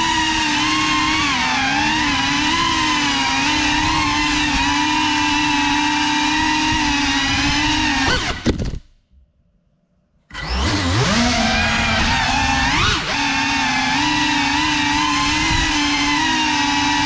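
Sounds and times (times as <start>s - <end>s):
drone motors whining: 0.0s - 8.5s, 10.3s - 17.0s.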